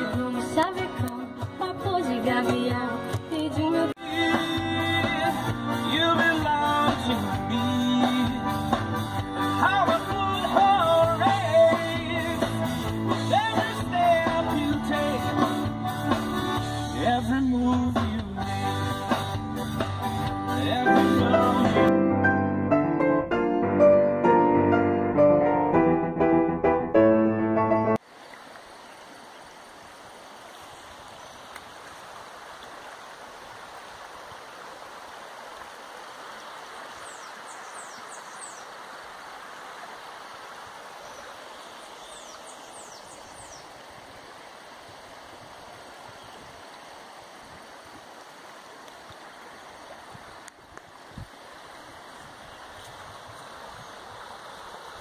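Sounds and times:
stream running over rocks: 0.0 - 21.9, 28.0 - 55.0
piano music: 4.0 - 28.0.

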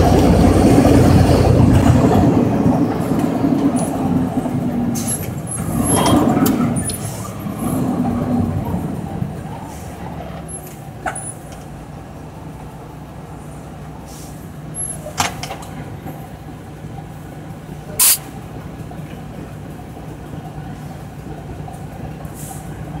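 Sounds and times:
diesel truck engine: 0.0 - 23.0
sharp burst of noise: 18.0 - 18.3.

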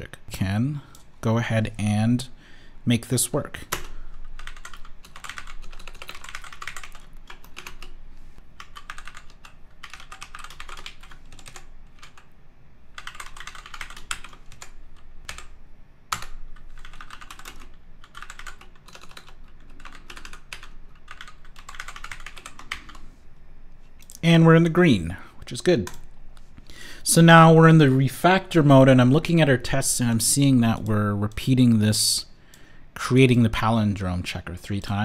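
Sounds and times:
typing on computer keyboard: 3.7 - 8.0, 8.6 - 12.3, 13.0 - 15.5, 16.1 - 23.0.

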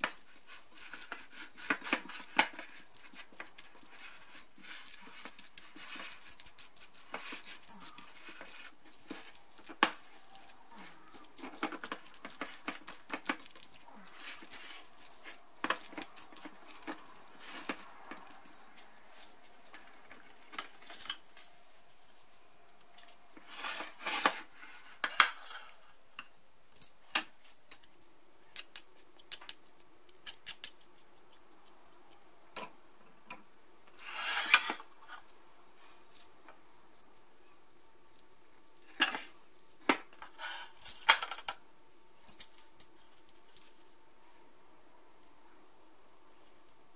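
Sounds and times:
spatula stirring mixture in bowl: 0.0 - 22.4.

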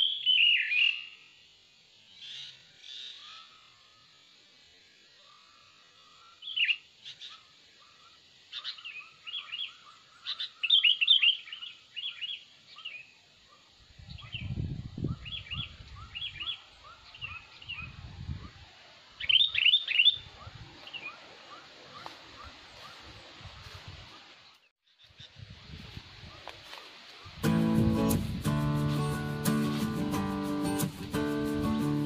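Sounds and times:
bulbuls chirping: 5.2 - 18.6, 19.2 - 23.4.

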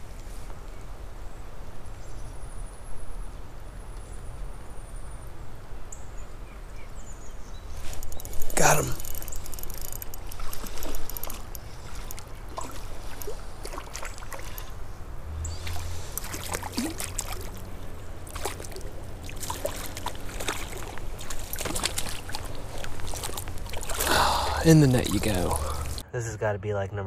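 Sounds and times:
fish splashing in water: 7.9 - 26.0
fishing reel clicks: 8.0 - 12.3.

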